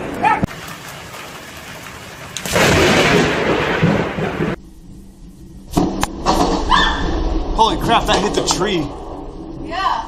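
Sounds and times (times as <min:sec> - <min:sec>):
thunder crash: 0:02.4 - 0:10.0.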